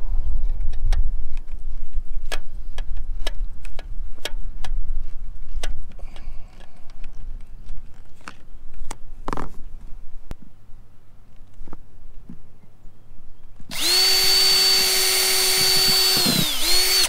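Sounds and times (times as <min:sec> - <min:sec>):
wind rumbling on microphone: 0:00.0 - 0:10.5, 0:15.1 - 0:17.0
sharp clicks: 0:13.7 - 0:17.0.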